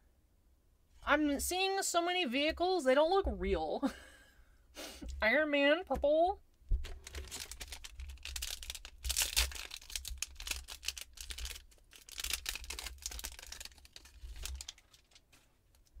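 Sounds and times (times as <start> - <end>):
foil wrapper tearing and crinkling: 6.8 - 16.0.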